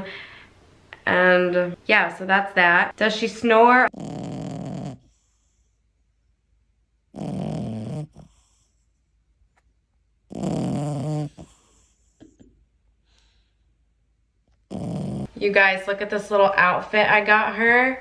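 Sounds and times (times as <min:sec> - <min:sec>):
puppy snoring: 0:03.6 - 0:05.8, 0:07.1 - 0:09.0, 0:10.3 - 0:12.2, 0:14.6 - 0:15.4.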